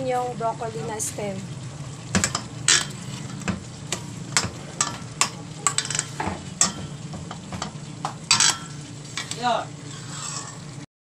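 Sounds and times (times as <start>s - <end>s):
light sizzle: 0.0s - 10.9s
metal spoon scraping a pot: 2.2s - 6.9s, 8.3s - 10.8s.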